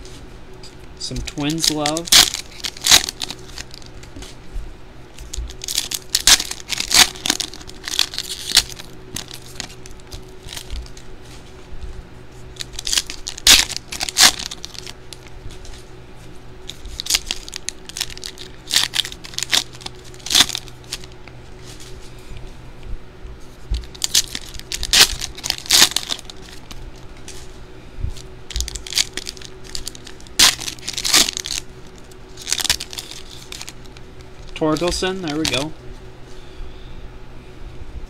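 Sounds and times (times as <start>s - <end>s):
foil packs crinkling: 1.0s - 4.2s, 5.1s - 11.5s, 12.4s - 15.8s, 16.6s - 22.0s, 23.7s - 27.5s, 28.2s - 35.8s
foil packs being torn open: 1.1s - 4.1s, 5.2s - 11.1s, 12.6s - 15.3s, 16.6s - 21.2s, 23.8s - 27.4s, 28.5s - 35.7s.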